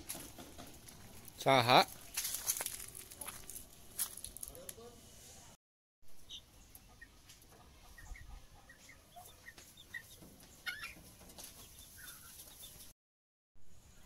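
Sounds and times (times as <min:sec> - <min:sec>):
chicks peeping: 0:06.2 - 0:12.9.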